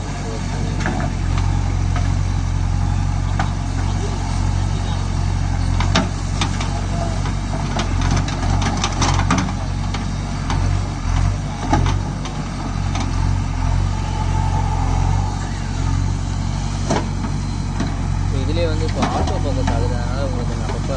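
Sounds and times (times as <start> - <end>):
diesel engine running: 0.0 - 20.9
bucket and arm clanking: 3.3 - 13.8, 18.8 - 20.9.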